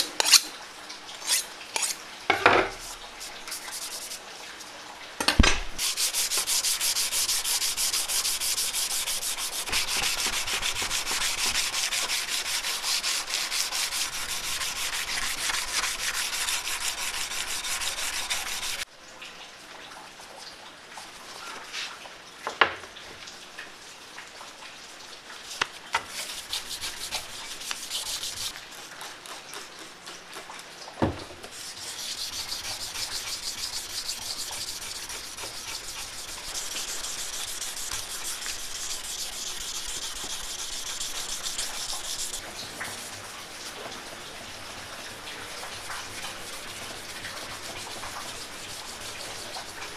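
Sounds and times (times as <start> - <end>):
sandpaper rubbing on steel: 3.2 - 4.2, 5.8 - 18.8, 26.1 - 28.9, 31.5 - 43.2, 46.1 - 49.9.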